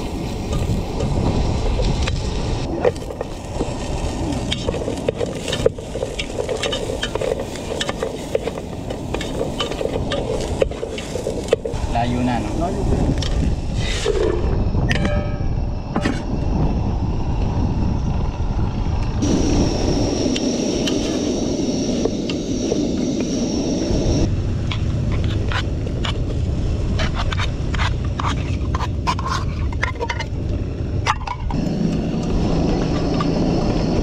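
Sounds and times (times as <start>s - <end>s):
potatoes and onions frying: 0.0s - 12.5s
low rumble: 0.0s - 34.0s
wooden spoon scraping a pot: 2.8s - 11.8s, 27.0s - 30.3s.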